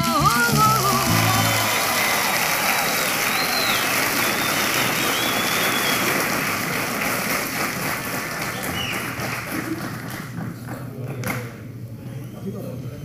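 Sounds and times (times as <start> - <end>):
audience applauding and cheering: 0.0 - 10.7
short whistles: 2.9 - 6.1, 8.5 - 9.0.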